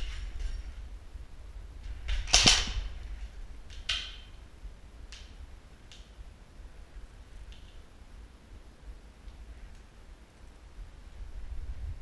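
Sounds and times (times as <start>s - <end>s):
airsoft gun shots: 2.2s - 3.0s.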